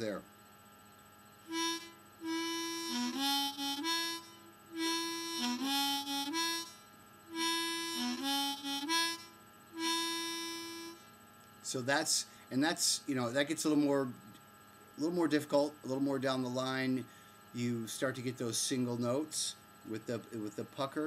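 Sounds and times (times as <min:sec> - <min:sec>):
harmonica riff: 0:01.4 - 0:11.1.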